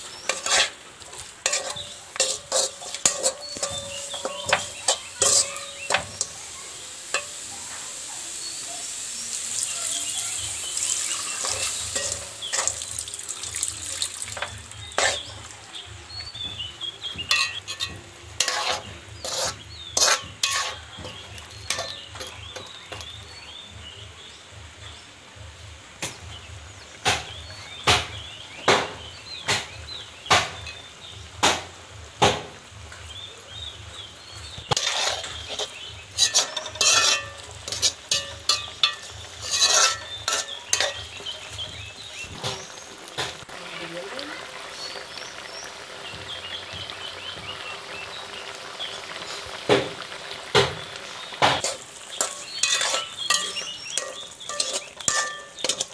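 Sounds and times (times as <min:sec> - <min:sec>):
curry sizzling: 0:00.0 - 0:55.9
metal spatula knocking a pan: 0:01.4 - 0:06.4, 0:11.1 - 0:13.0, 0:16.3 - 0:23.2, 0:27.0 - 0:30.8, 0:31.4 - 0:32.6, 0:34.6 - 0:43.4, 0:49.7 - 0:55.9.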